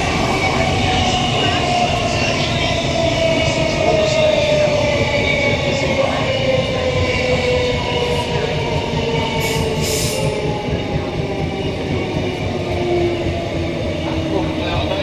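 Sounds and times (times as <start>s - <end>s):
electric train traction whine: 0.0s - 15.0s.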